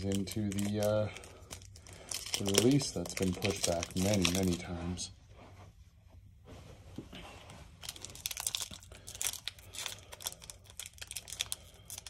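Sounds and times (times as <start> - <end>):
foil wrapper crinkling: 0.0 - 4.7, 7.8 - 12.0.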